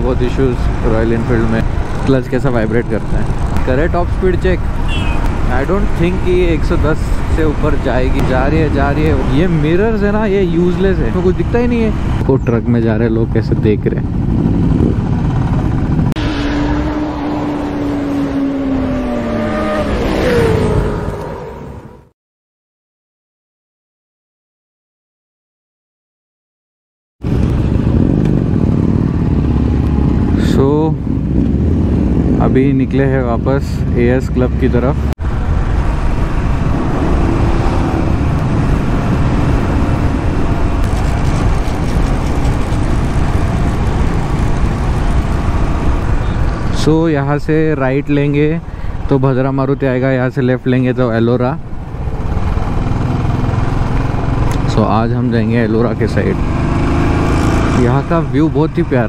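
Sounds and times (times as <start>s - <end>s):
motorcycle engine rumble: 0.0s - 22.0s, 27.2s - 59.0s
wind noise: 0.0s - 22.0s, 27.2s - 59.0s
motorcycle engine running: 4.6s - 6.6s, 27.3s - 32.6s, 35.3s - 46.8s, 51.7s - 59.0s.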